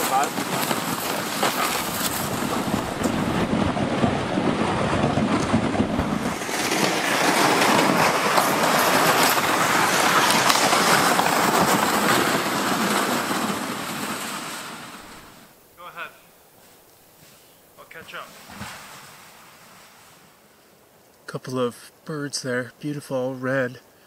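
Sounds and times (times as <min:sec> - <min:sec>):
footsteps crunching in snow: 0:00.0 - 0:03.6, 0:05.8 - 0:15.5, 0:16.5 - 0:20.4
sleds scraping over snow: 0:00.0 - 0:20.5.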